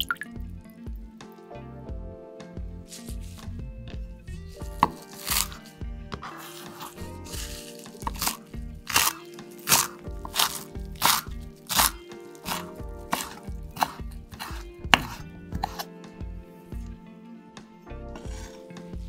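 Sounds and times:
background music: 0.0 - 19.0
knife chopping on wooden board: 4.6 - 15.9.

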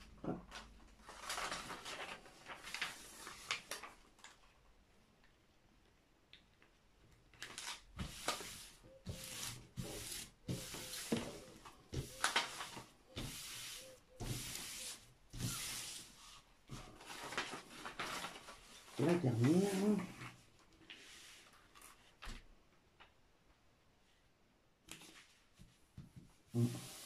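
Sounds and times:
hands rubbing plastic film: 7.3 - 20.2.

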